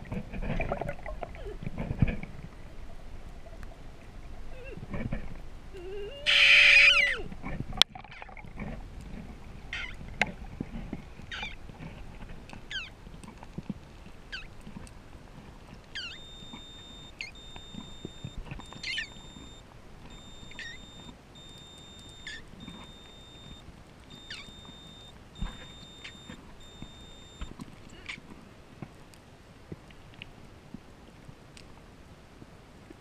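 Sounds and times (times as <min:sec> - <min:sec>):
high electronic beeping: 0:16.0 - 0:27.5
high falling chirp: 0:16.0 - 0:27.5.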